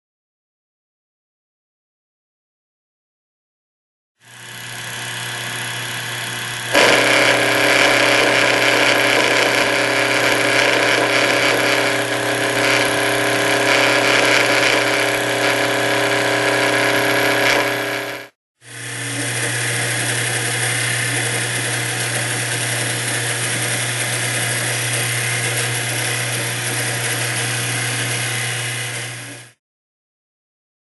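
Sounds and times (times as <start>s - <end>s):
lathe motor humming: 4.2s - 29.6s
tool cutting wood: 4.2s - 29.6s.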